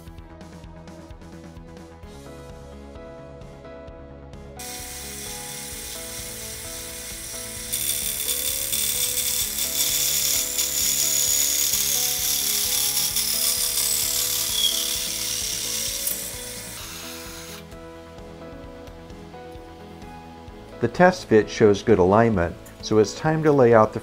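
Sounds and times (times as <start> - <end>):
hole saw cutting metal: 4.6 - 17.6.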